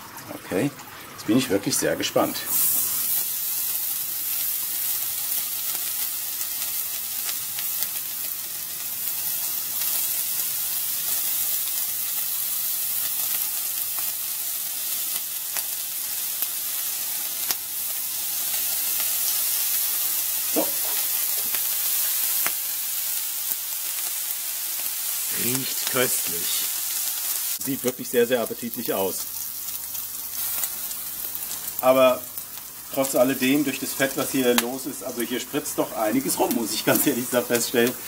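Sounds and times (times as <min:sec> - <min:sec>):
bacon sizzling: 0:00.9 - 0:38.0
fat spitting and crackling: 0:20.5 - 0:21.6.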